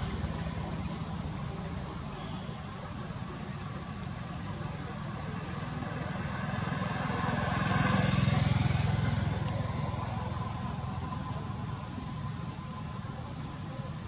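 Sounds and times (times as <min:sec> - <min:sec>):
motorbike engine passing by: 0:05.5 - 0:11.8.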